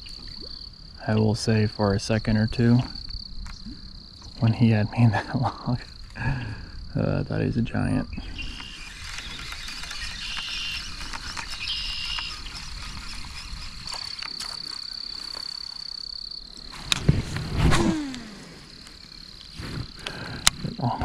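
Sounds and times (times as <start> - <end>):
frogs calling: 0.0 - 17.0, 17.8 - 21.0
insects trilling: 0.0 - 21.0
sudden loud sounds: 17.0 - 18.8.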